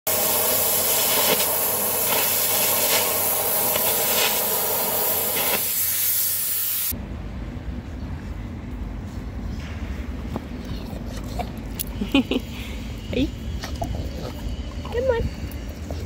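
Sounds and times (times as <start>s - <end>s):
air arc gouging hiss: 0.1s - 7.0s
sharp arc pops: 5.1s - 6.2s.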